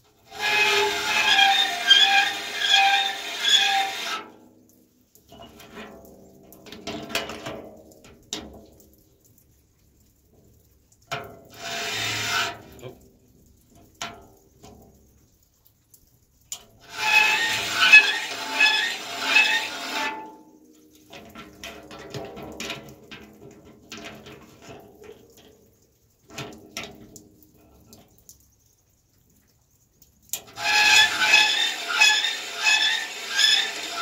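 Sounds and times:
file rasping on saw blade: 0.3s - 4.2s, 11.6s - 12.6s, 16.9s - 20.3s, 30.6s - 34.0s.

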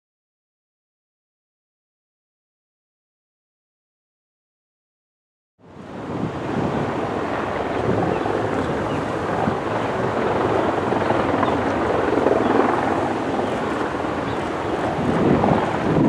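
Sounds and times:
broad rushing noise: 5.6s - 16.0s
helicopter rotor beating: 5.9s - 16.0s.

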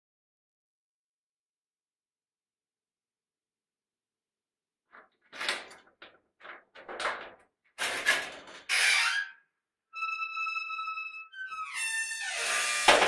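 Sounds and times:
door hinges creaking: 5.0s - 13.0s.

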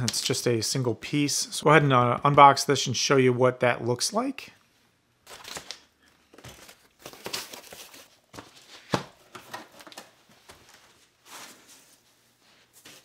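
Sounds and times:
foam wrap rustling and crinkling: 5.3s - 13.0s.

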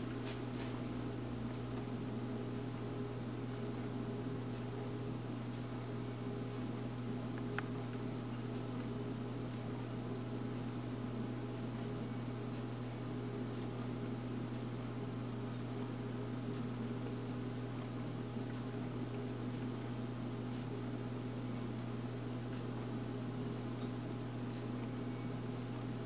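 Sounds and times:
low machine hum: 0.0s - 26.0s.

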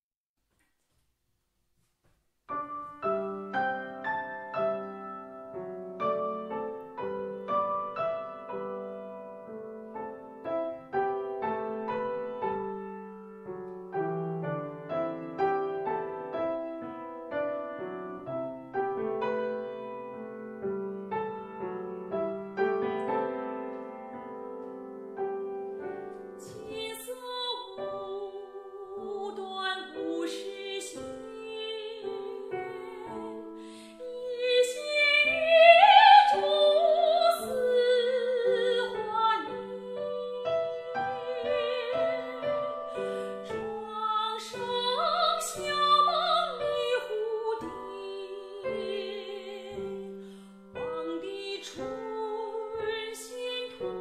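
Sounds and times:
piano accompaniment: 2.5s - 54.0s
soprano singing with vibrato: 26.4s - 54.0s.

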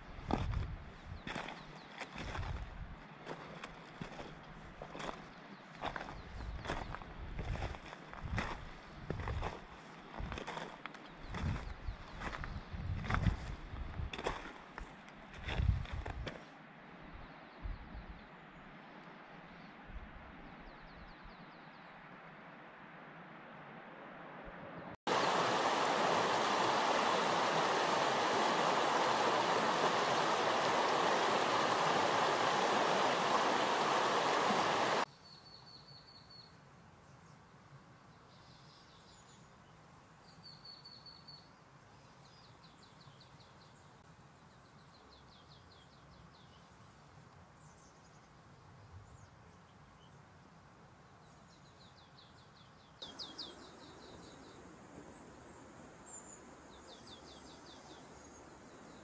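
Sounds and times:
river water rushing: 25.1s - 35.1s
small birds calling: 25.1s - 36.5s, 51.4s - 54.6s.

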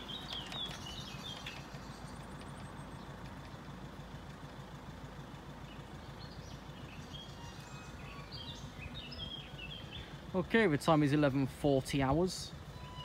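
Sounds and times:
low background rumble: 0.0s - 13.0s
small birds chirping: 0.0s - 13.0s.

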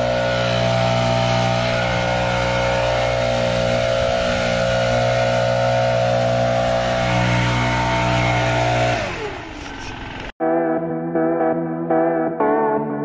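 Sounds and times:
leaf blower running: 0.0s - 10.3s.

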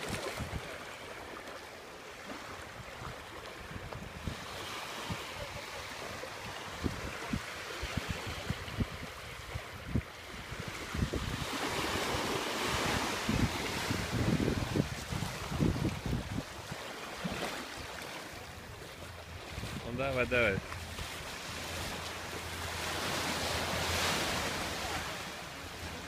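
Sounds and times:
wind buffeting microphone: 0.0s - 0.8s, 2.8s - 5.7s, 6.4s - 16.8s
small waves washing onto shore: 0.0s - 26.0s.

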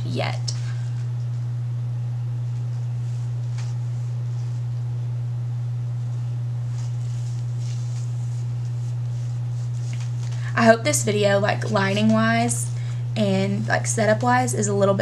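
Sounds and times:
low electrical hum: 0.0s - 15.0s
hands rustling hair: 2.5s - 4.8s, 6.6s - 12.6s.

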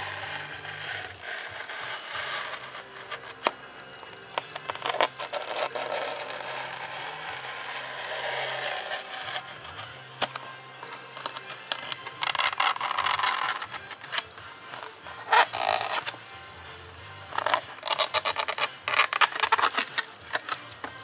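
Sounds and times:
knife scraping through foam board: 4.6s - 9.8s.

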